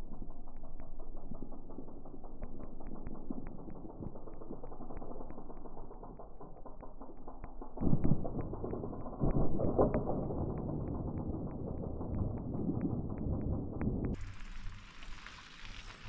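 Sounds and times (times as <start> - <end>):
light regular ticking: 0.0 - 16.0
bike tyres rushing on dirt: 14.2 - 16.0.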